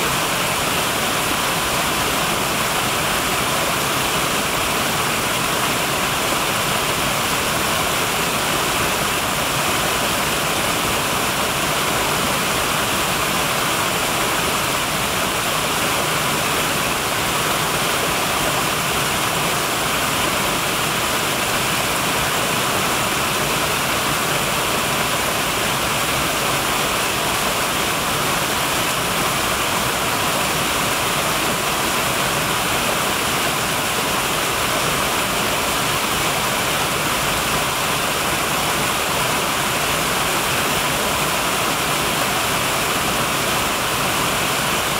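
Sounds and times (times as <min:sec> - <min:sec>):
water rushing over rocks: 0:00.0 - 0:44.9.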